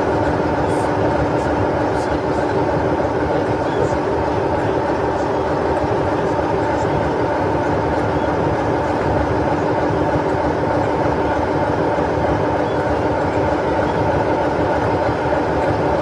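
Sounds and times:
diesel locomotive idling: 0:00.0 - 0:16.0.

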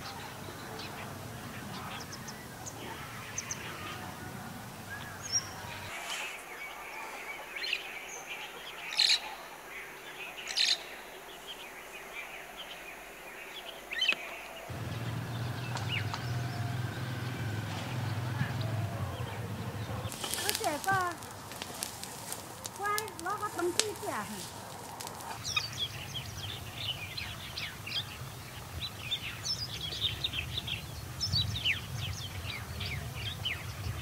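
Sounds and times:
wild birds chirping: 0:00.0 - 0:34.0
sharp bird calls: 0:13.4 - 0:34.0.

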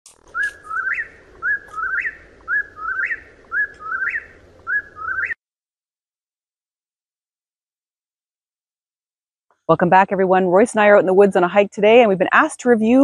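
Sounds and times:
whip-poor-will whistled call: 0:00.4 - 0:04.2.

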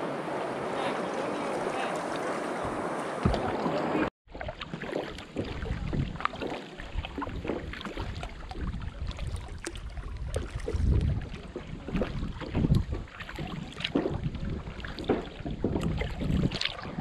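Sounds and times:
paddle splashes: 0:00.0 - 0:17.0
wind buffeting microphone: 0:05.2 - 0:17.0.

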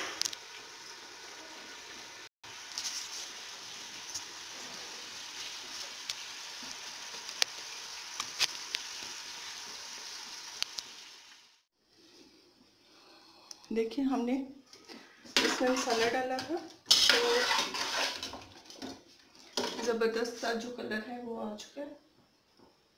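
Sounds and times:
chicken sizzling in oil: 0:00.0 - 0:11.7, 0:15.4 - 0:18.5.

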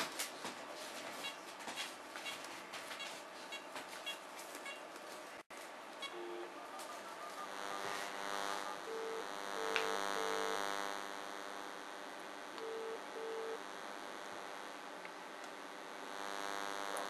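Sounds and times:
steady electrical hum: 0:00.0 - 0:17.0
telephone ringback tone: 0:06.1 - 0:10.5, 0:12.6 - 0:13.6.

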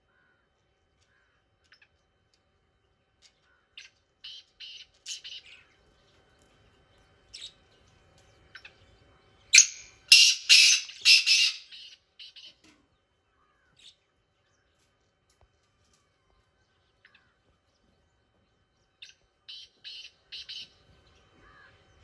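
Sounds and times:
bird calling: 0:09.5 - 0:12.6, 0:19.0 - 0:20.8.

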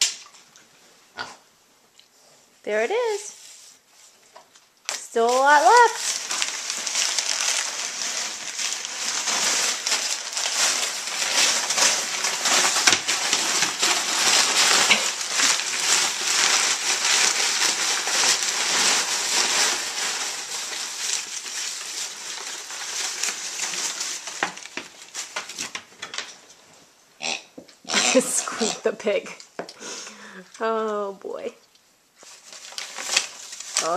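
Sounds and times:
packing paper crackling: 0:04.9 - 0:26.4, 0:32.2 - 0:33.9.

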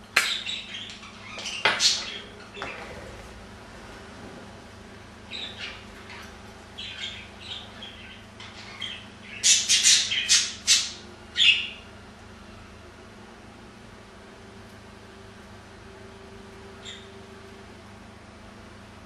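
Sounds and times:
budgerigars chirping: 0:00.2 - 0:02.8, 0:05.3 - 0:11.8, 0:16.8 - 0:17.2
budgerigars squawking: 0:00.3 - 0:02.8, 0:05.3 - 0:11.8.

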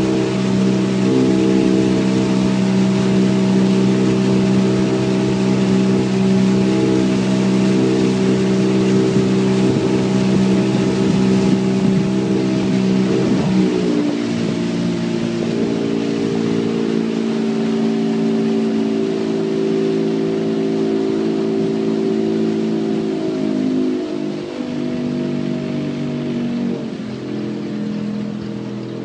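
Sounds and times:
outboard motor running: 0:00.0 - 0:29.0.

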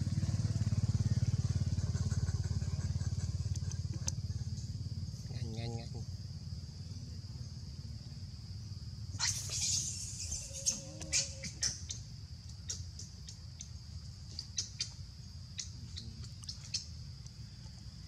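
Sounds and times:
insects buzzing: 0:00.0 - 0:18.0
monkey squealing: 0:09.2 - 0:11.9.

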